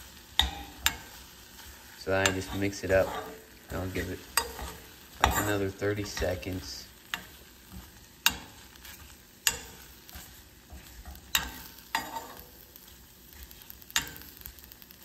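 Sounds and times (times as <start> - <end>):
faint sizzle: 0.0 - 15.0
metal spoon clinking against pan: 0.4 - 1.2, 4.3 - 6.5, 9.4 - 12.6, 13.9 - 14.5.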